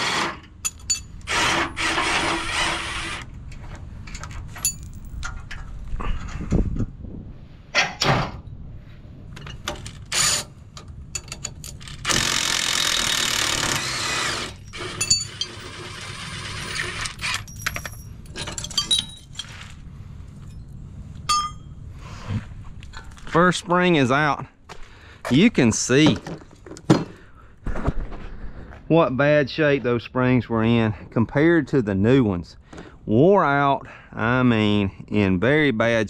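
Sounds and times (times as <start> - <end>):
steel clanks and clinks: 0.5 - 1.3, 4.0 - 6.4, 9.3 - 12.2, 14.5 - 19.8, 20.4 - 21.8
impact wrench burst: 11.8 - 17.5.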